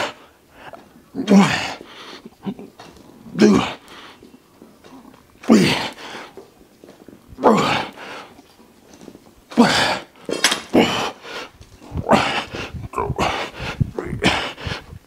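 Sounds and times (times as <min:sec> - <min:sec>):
man grunting with exertion: 0:03.4 - 0:03.8, 0:07.4 - 0:08.0, 0:09.5 - 0:10.1, 0:10.7 - 0:11.2, 0:11.9 - 0:14.8.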